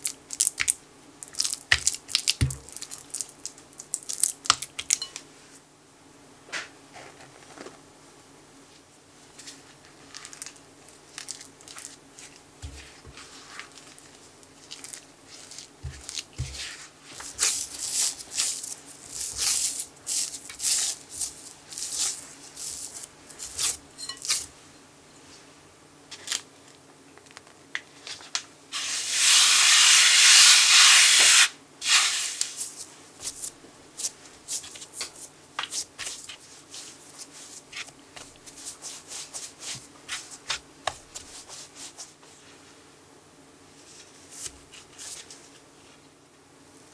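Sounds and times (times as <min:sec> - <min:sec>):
hands kneading dough in a bowl: 0:00.0 - 0:05.3, 0:09.3 - 0:24.6, 0:28.0 - 0:42.7
steady hiss: 0:28.7 - 0:33.4.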